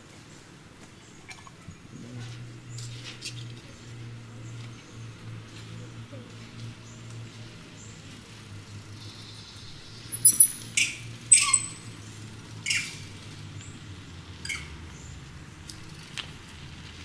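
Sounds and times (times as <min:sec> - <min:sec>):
animal chirps: 0:10.1 - 0:11.9, 0:12.6 - 0:13.0, 0:14.4 - 0:14.8.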